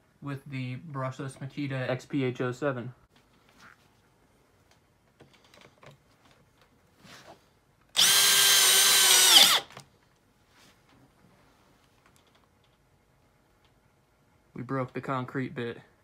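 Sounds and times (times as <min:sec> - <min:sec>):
drill motor whine: 0:08.0 - 0:09.7.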